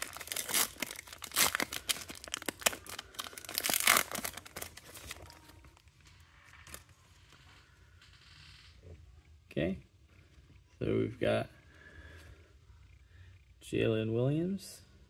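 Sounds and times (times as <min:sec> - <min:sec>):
foil wrapper tearing and crinkling: 0:00.0 - 0:05.4.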